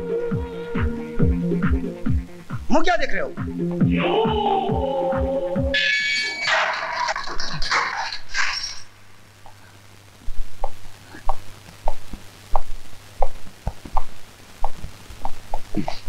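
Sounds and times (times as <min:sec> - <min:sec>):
music: 0:00.0 - 0:06.5.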